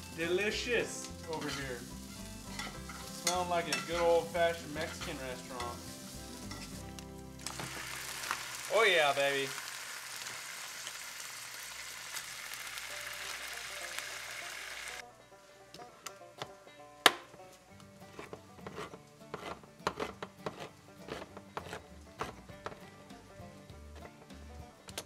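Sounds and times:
meat sizzling in a frying pan: 0:00.0 - 0:15.0.

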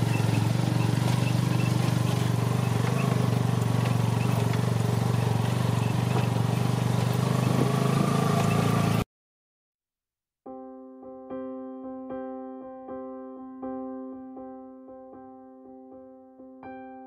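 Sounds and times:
motorbike engine running: 0:00.0 - 0:09.0
electric piano music: 0:10.5 - 0:17.0.

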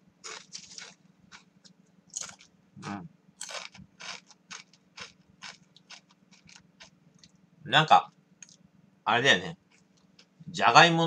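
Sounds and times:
crunching potato chips: 0:00.2 - 0:01.5, 0:02.2 - 0:02.5, 0:03.4 - 0:06.9.

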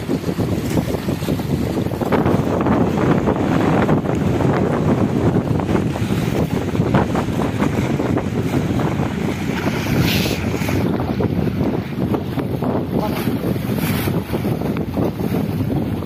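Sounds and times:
water slapping boat hull: 0:00.0 - 0:16.0
wind buffeting microphone: 0:00.0 - 0:16.0.

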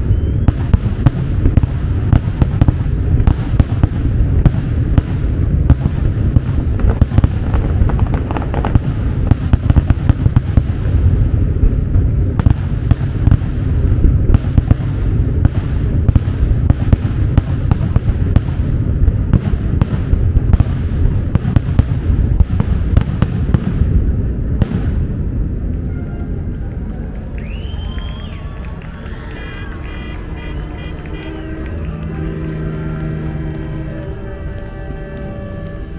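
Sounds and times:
fireworks cracking: 0:00.0 - 0:35.9
fireworks rumbling: 0:00.0 - 0:35.9.

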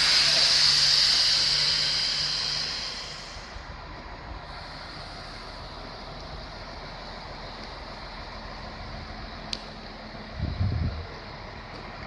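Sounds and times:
compressed air hissing: 0:00.0 - 0:05.9.

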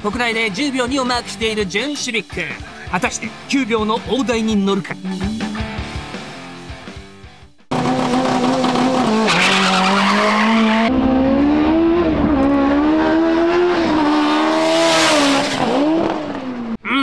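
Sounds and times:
car engine at full throttle: 0:07.7 - 0:16.8.

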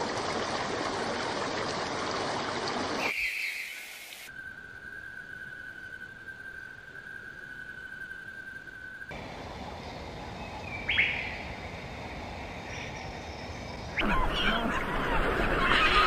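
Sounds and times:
songbird sharp call: 0:03.0 - 0:04.1, 0:10.6 - 0:11.5
high whistle-like tone: 0:03.0 - 0:09.1
light hiss: 0:03.0 - 0:14.0
seabird colony calling: 0:13.9 - 0:16.0.

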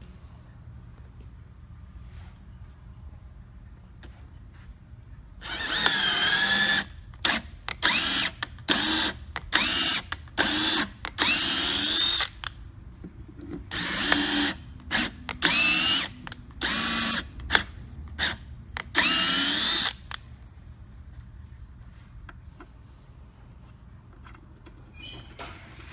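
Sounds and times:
cordless drill whining: 0:05.4 - 0:12.5, 0:13.7 - 0:17.6, 0:18.2 - 0:20.2.

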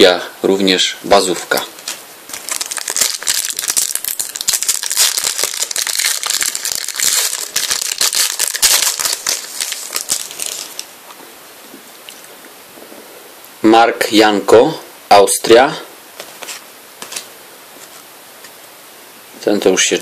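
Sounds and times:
card pack wrapper crinkling: 0:01.8 - 0:10.9.

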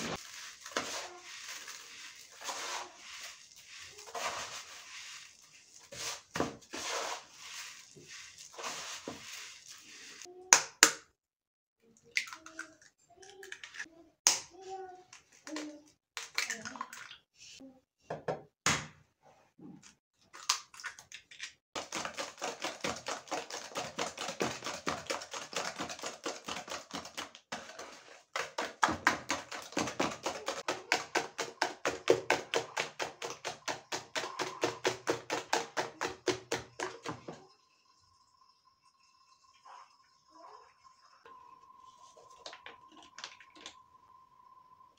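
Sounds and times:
rubbing sugar in a bowl: 0:00.0 - 0:10.3, 0:21.8 - 0:37.1
wire whisk beating: 0:21.8 - 0:37.2.

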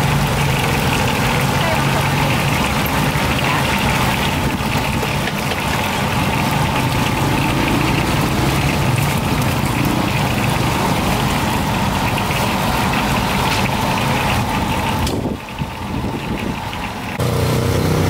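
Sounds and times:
engine running: 0:00.0 - 0:18.0.

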